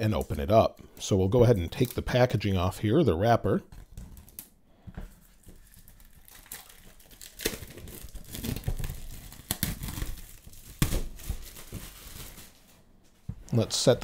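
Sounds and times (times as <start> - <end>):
plastic wrap crinkling: 0.0 - 2.4, 5.1 - 13.6.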